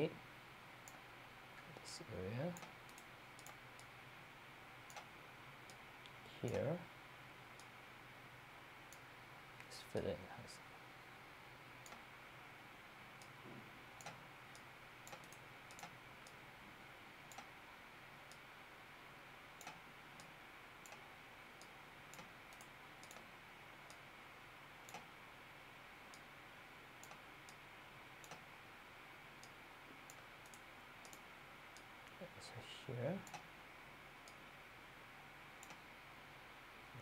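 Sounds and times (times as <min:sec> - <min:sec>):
steady background hiss: 0:00.0 - 0:37.0
computer mouse clicks: 0:02.6 - 0:03.9, 0:04.9 - 0:05.1, 0:11.8 - 0:12.0, 0:14.0 - 0:16.4, 0:17.3 - 0:17.5, 0:19.6 - 0:21.0, 0:21.6 - 0:23.3, 0:24.8 - 0:25.1, 0:27.0 - 0:27.6, 0:28.2 - 0:28.5, 0:29.4 - 0:32.2, 0:33.2 - 0:33.5, 0:35.6 - 0:35.8.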